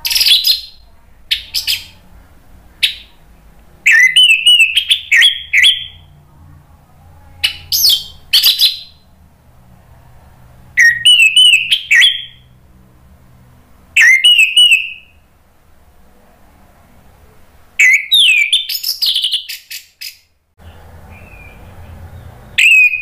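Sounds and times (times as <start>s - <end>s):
thrush singing whistled song: 0.0s - 2.0s, 2.8s - 3.1s, 3.8s - 6.1s, 7.4s - 9.1s, 10.8s - 12.5s, 14.0s - 15.2s, 17.8s - 23.0s.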